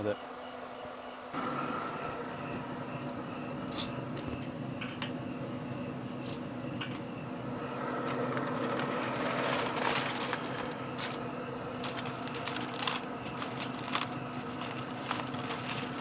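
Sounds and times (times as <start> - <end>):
grill fan hum: 0.0 - 16.0
foil pan crinkling and scraping: 8.1 - 16.0.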